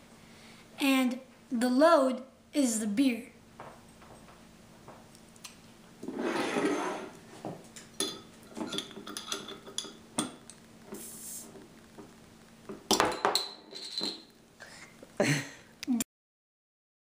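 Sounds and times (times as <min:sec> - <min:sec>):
brief hiss: 0:11.0 - 0:11.5.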